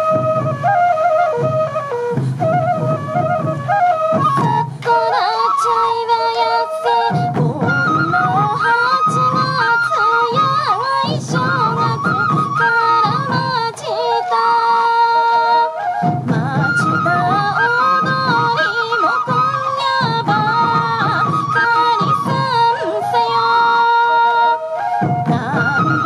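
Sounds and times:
taiko drum beats: 0.0 - 5.0, 7.1 - 13.9, 15.8 - 23.2, 24.9 - 26.0
bamboo flutes playing melody: 0.0 - 26.0
woman singing folk song: 4.2 - 26.0.

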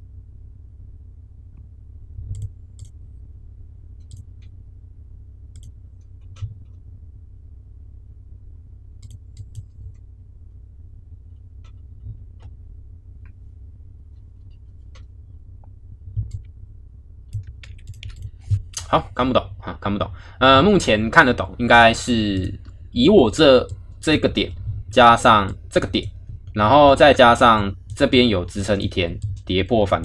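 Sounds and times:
steady low hum: 0.0 - 30.0
computer mouse clicking: 2.3 - 3.0, 5.5 - 6.7, 9.0 - 9.7, 17.3 - 18.9, 22.4 - 22.8, 29.2 - 30.0.

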